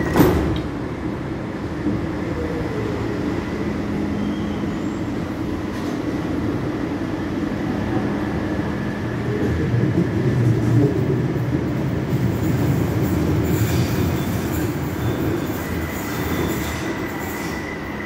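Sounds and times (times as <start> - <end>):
train rumble: 0.0 - 18.0
train wheels squealing: 2.4 - 5.4, 12.5 - 18.0.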